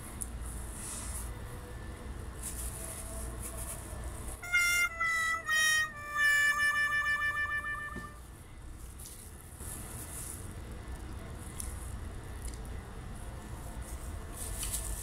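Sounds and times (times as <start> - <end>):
faint low room hum: 0.0 - 15.0
reedy harmonica-like melody: 4.4 - 8.2.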